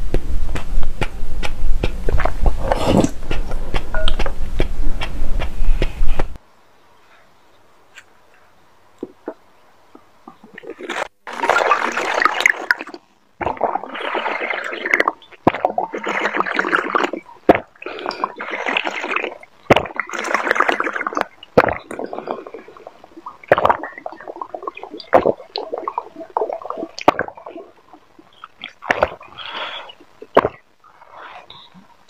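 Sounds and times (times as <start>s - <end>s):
mouth and throat clicks: 0.0s - 6.4s, 12.9s - 30.7s
slurping drink from bottle: 1.9s - 4.2s, 10.6s - 27.7s
swallowing: 12.8s - 32.0s.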